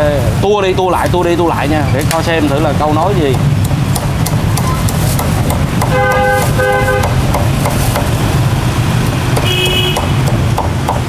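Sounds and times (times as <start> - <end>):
low rumble of traffic: 0.0 - 11.0
cleaver chopping on wooden block: 3.0 - 8.2, 9.3 - 11.0
vehicle horn beeping: 5.9 - 7.2, 9.4 - 10.2.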